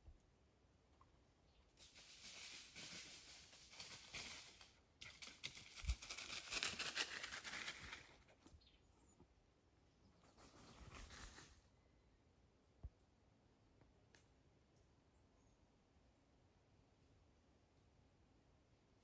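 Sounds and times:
leaves rustling and crackling: 1.8 - 8.2.

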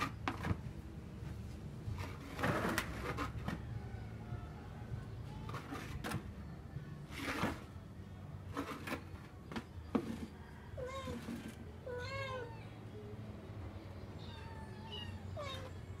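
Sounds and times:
cat meowing: 10.8 - 12.8, 14.2 - 15.9.

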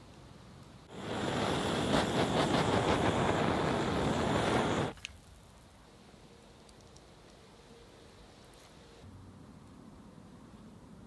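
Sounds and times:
gas blowtorch hissing: 0.9 - 5.0.

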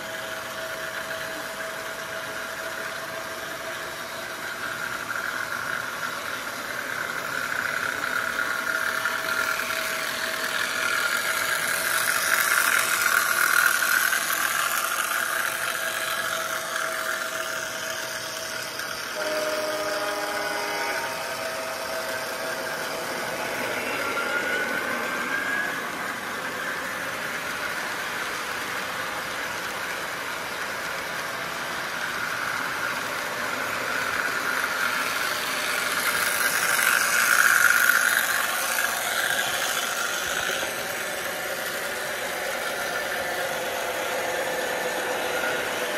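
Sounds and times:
model train rolling rumble: 0.0 - 45.9
model train horn: 19.0 - 25.6.

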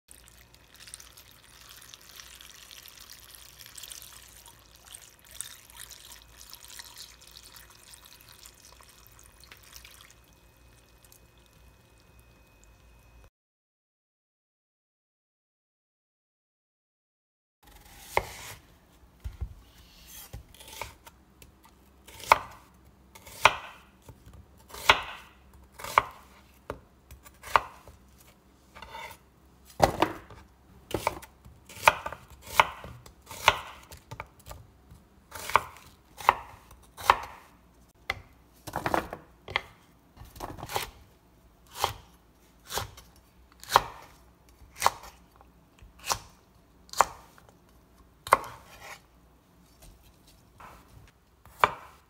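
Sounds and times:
knife chopping on wooden board: 17.9 - 18.6, 23.2 - 23.9, 24.7 - 28.0, 29.8 - 34.6, 35.3 - 37.5, 40.4 - 40.9, 41.7 - 44.1, 48.2 - 49.0, 50.6 - 50.8, 51.4 - 52.0.

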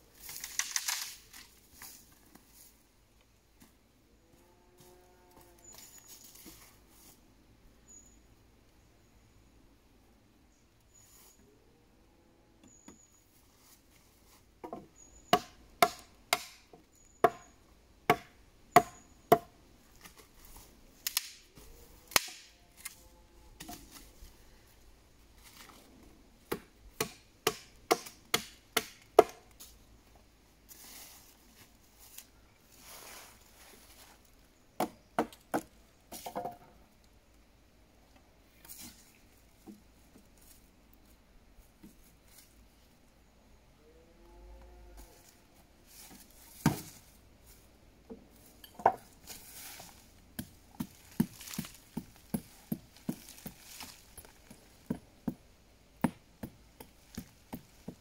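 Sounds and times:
soft rustling: 30.7 - 34.4, 45.1 - 54.8.

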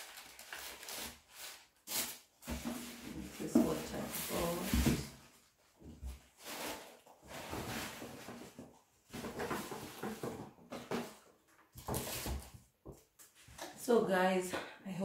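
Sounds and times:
paper rustling: 0.0 - 4.8.

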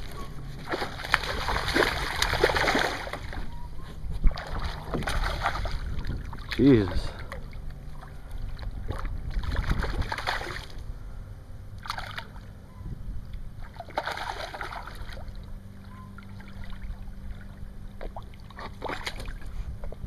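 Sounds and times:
faint low hum: 0.0 - 20.0
fish splashing at surface: 0.6 - 3.4, 8.9 - 10.7, 13.7 - 15.2.

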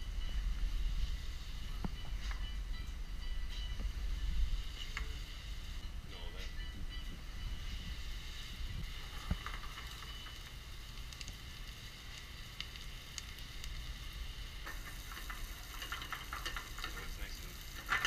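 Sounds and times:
food sizzling in a frying pan: 0.0 - 2.5, 3.6 - 18.0.

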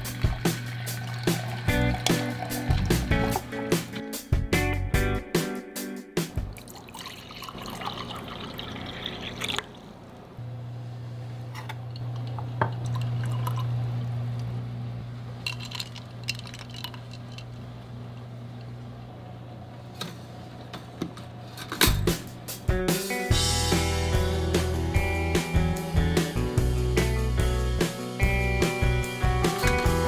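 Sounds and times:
liquid pouring into a glass: 0.2 - 3.4, 6.5 - 9.9, 12.8 - 13.8, 15.5 - 17.4.

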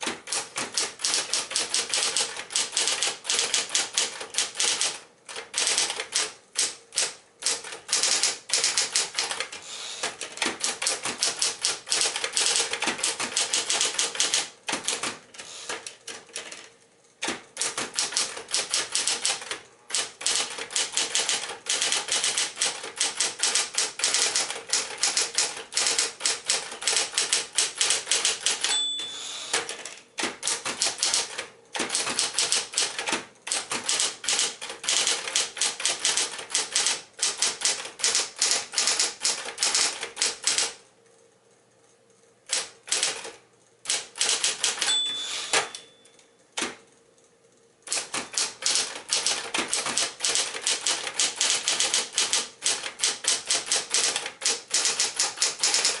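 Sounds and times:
typewriter key strikes: 0.0 - 9.6, 10.2 - 16.6, 17.2 - 40.8, 42.5 - 46.0, 47.9 - 56.0
typewriter motor hum: 0.0 - 40.8, 42.1 - 45.8, 46.6 - 56.0
typewriter margin bell ring: 28.5 - 29.7, 44.2 - 46.2.

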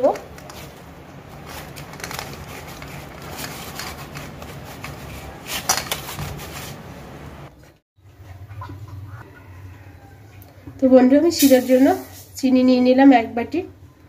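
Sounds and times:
dough rubbing on metal plate: 2.4 - 7.0.

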